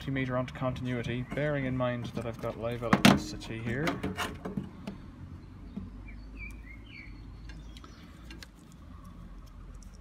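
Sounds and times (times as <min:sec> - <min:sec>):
bird chirps: 0:05.3 - 0:08.3.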